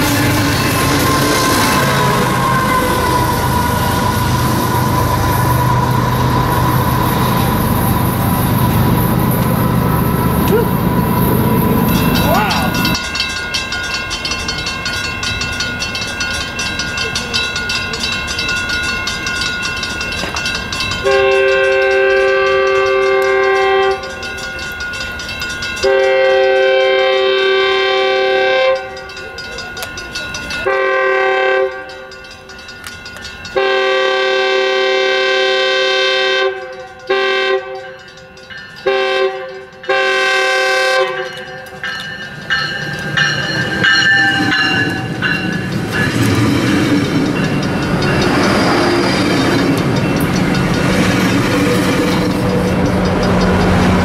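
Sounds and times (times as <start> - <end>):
locomotive horn blasts: 0.8 - 4.4, 21.0 - 24.1, 25.8 - 29.0, 30.7 - 31.9, 33.6 - 38.0, 38.9 - 41.4
steady bell ringing: 11.4 - 27.0, 28.6 - 34.1, 36.6 - 40.3, 41.0 - 54.0.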